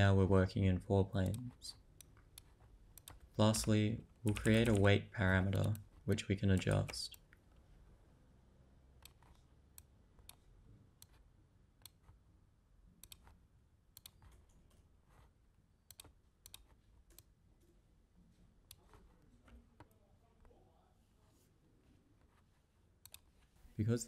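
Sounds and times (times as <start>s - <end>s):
faint computer mouse clicks: 13.0s - 13.4s, 14.0s - 14.8s, 15.9s - 17.3s, 23.0s - 23.3s.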